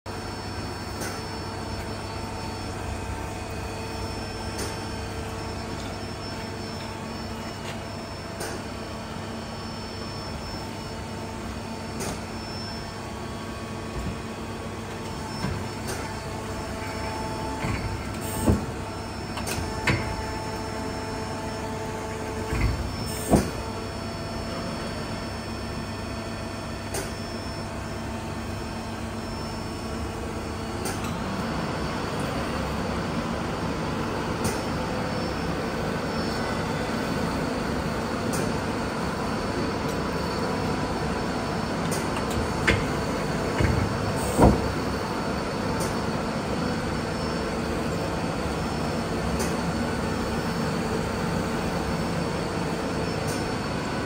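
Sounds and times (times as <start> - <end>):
lathe machine hum: 8.8 - 25.8.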